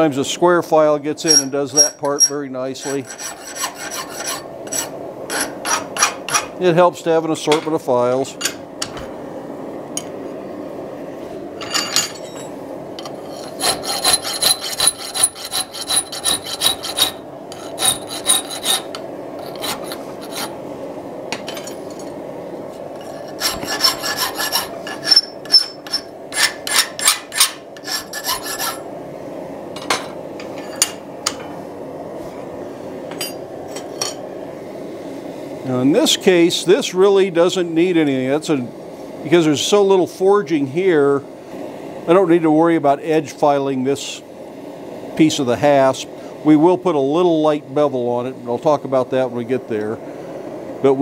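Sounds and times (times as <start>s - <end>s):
steady background hum: 0.0s - 51.0s
metal file scraping steel: 1.2s - 6.4s, 13.0s - 20.6s, 23.0s - 28.9s.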